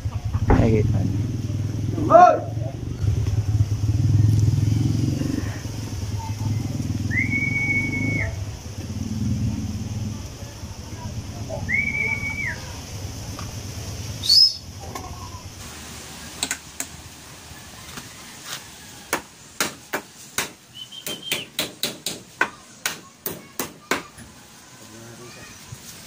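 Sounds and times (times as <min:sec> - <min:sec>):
whistled note: 0:07.0 - 0:08.4, 0:11.5 - 0:12.7, 0:14.2 - 0:14.6, 0:20.7 - 0:21.5.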